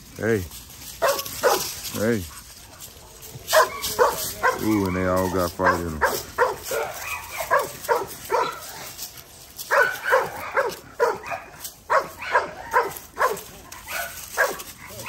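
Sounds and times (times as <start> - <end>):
dog barking: 1.0 - 1.7, 3.5 - 8.9, 9.7 - 15.0.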